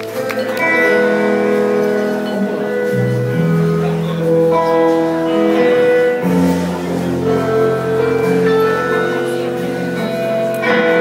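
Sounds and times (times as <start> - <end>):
live instrumental concert music: 0.0 - 11.0.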